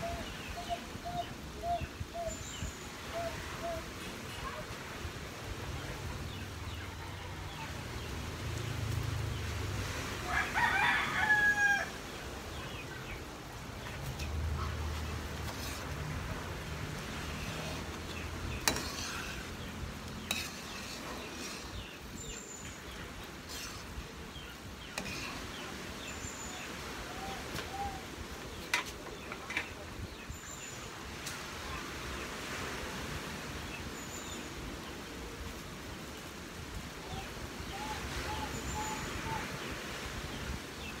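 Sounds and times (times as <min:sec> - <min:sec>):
rooster crowing: 0:10.2 - 0:12.0.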